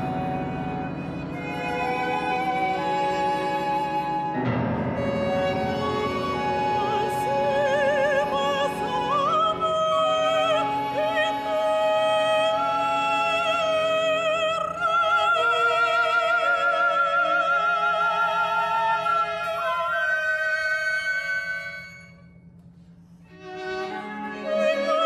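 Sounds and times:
chamber ensemble accompaniment: 0.0s - 25.0s
operatic soprano singing: 5.0s - 21.6s, 23.8s - 25.0s.

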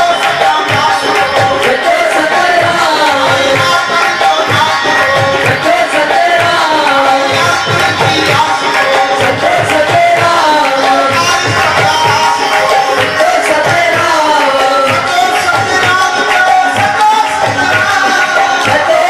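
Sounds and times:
tabla playing steady rhythm: 0.0s - 19.0s
ornamented sliding melody: 10.8s - 14.2s.

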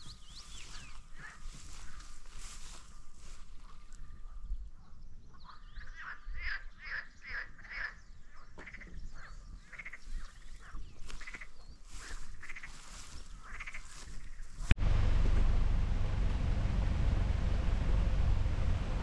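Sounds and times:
chirps: 0.0s - 2.0s.

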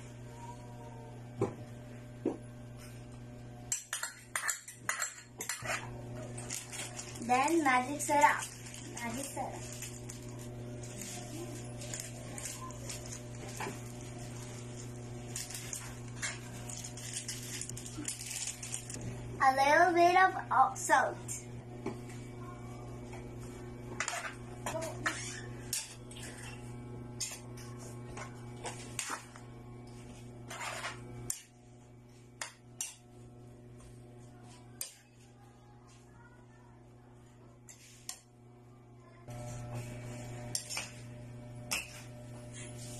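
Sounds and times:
steady low hum: 0.0s - 42.9s
utensil scraping a pan: 30.4s - 31.5s.

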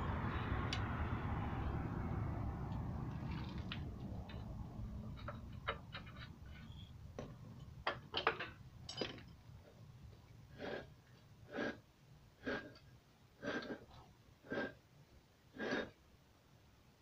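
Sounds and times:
metal clicks and knocks: 3.2s - 9.4s.

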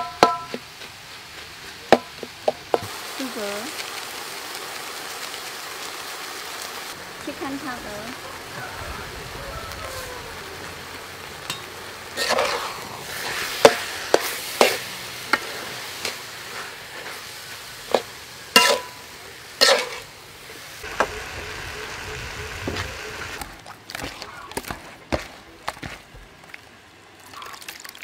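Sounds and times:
food sizzling: 0.0s - 28.0s
spatula scraping a pan: 11.4s - 19.0s, 19.6s - 21.2s.

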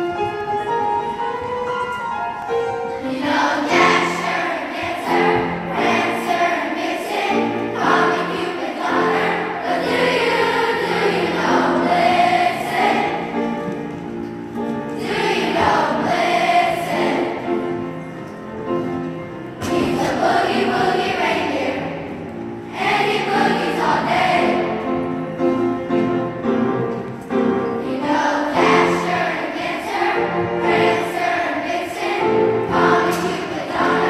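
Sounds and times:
piano accompaniment: 0.0s - 34.0s
choir singing in unison: 3.0s - 13.6s, 15.0s - 17.8s, 19.6s - 22.0s, 22.7s - 25.0s, 27.8s - 34.0s.

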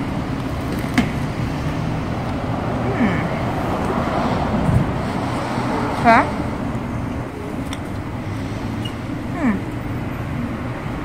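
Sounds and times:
street traffic: 0.0s - 11.0s.

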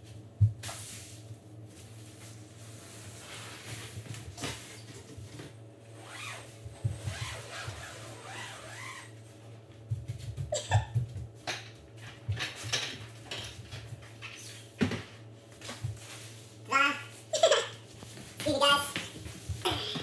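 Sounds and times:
nylon fabric rustling: 6.0s - 9.1s.

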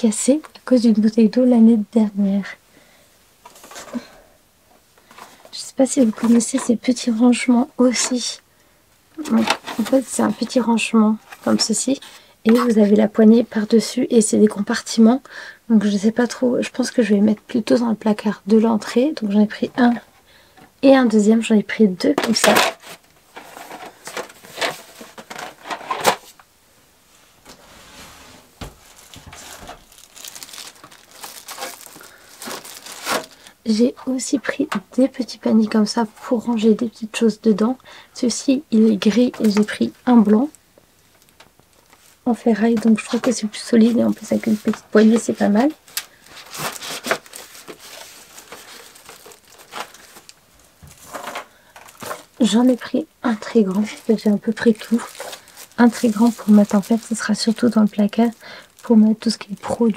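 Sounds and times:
packaging rustling: 9.2s - 10.6s, 28.6s - 33.6s, 42.8s - 59.9s.

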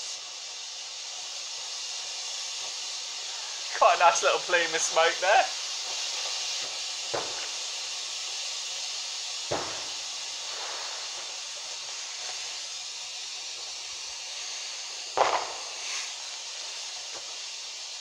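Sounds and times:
smoke grenade hissing: 0.0s - 18.0s
sharp pops and crack: 5.9s - 7.6s, 9.5s - 11.3s, 15.1s - 16.2s.

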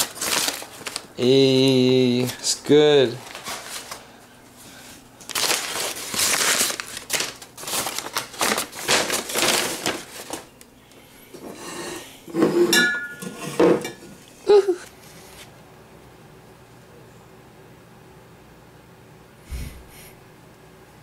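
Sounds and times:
paper rustling and crinkling: 0.0s - 10.6s.

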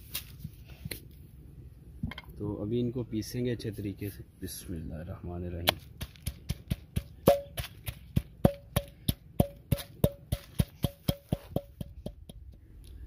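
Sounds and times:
pestle pounding in clay mortar: 5.6s - 12.7s.

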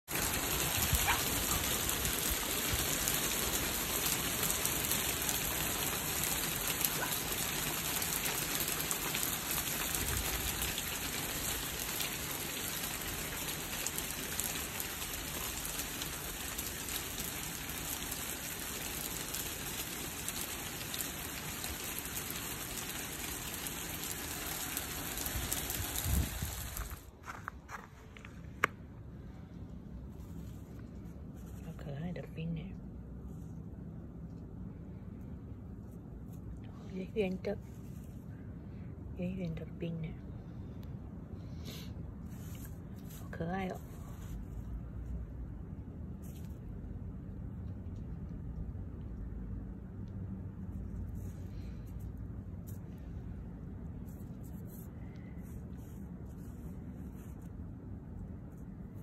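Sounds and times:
snow pellets hissing on surfaces: 0.1s - 27.1s.

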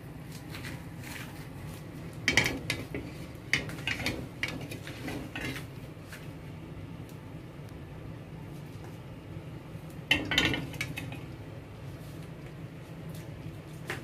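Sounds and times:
steady low hum: 0.0s - 14.0s
frying pan scraping metal grate: 2.2s - 5.9s.

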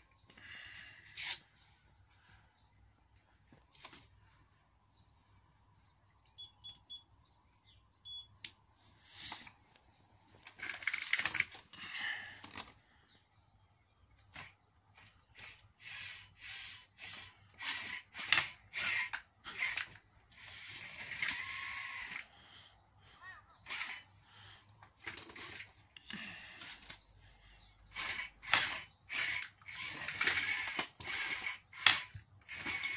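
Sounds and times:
robot drive motors whirring: 14.2s - 22.3s, 23.6s - 24.2s, 27.9s - 32.9s.

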